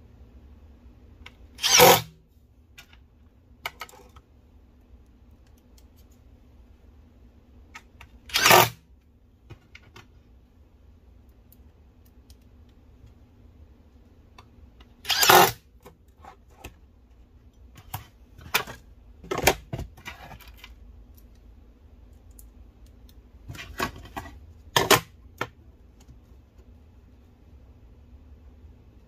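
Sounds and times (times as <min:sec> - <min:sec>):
cordless drill driving screws: 0:01.6 - 0:02.0, 0:08.3 - 0:08.7, 0:15.1 - 0:15.6.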